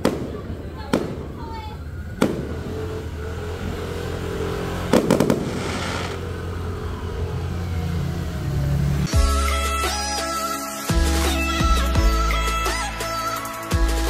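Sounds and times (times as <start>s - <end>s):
distant fireworks bangs: 0.0s - 6.6s
low hum: 1.1s - 9.1s
crackling hiss: 4.6s - 6.5s.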